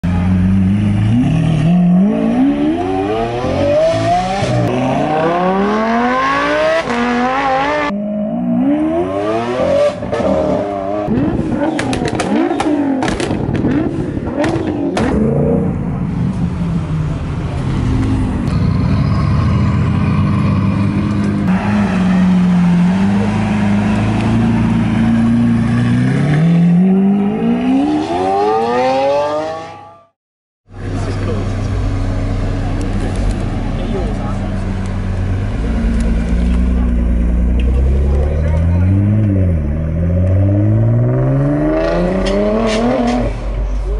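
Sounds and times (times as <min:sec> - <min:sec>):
exhaust cracks and pops: 0:11.7 - 0:15.2.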